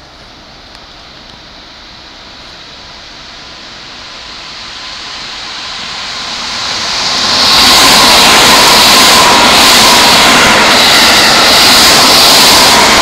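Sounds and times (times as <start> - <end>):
faint steady whine: 0.0 - 13.0
electric train passing: 0.3 - 13.0.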